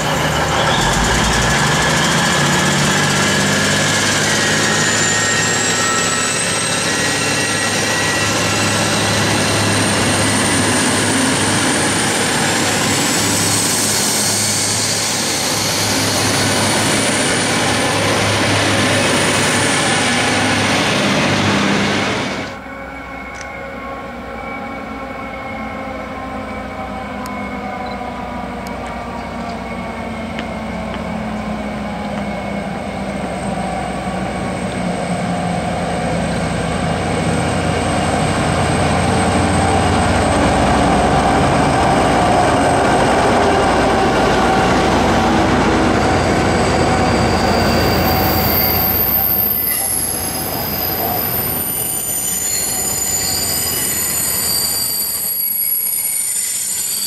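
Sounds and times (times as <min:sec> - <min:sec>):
high-pitched wheel squeal: 0:00.0 - 0:22.6, 0:38.6 - 0:57.0
train carriages rolling: 0:00.0 - 0:22.6
diesel locomotive engine hum: 0:00.0 - 0:57.0.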